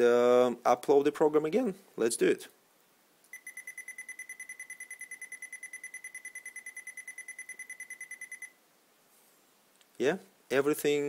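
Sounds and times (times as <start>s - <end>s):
rapid high-pitched beeps: 3.3s - 8.5s.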